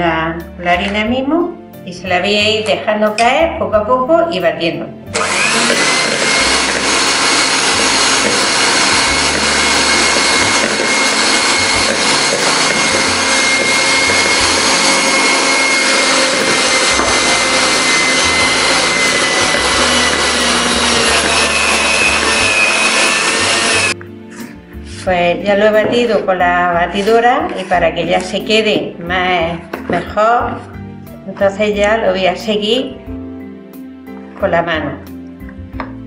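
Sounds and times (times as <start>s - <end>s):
electric hand mixer whining: 5.1s - 24.0s.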